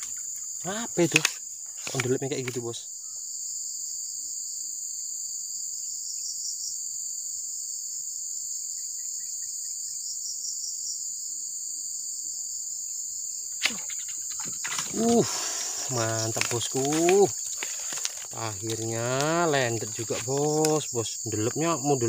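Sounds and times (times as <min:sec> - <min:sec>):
faint chirps: 0:00.0 - 0:03.4, 0:11.3 - 0:22.0
high-pitched insect chorus: 0:00.0 - 0:22.0.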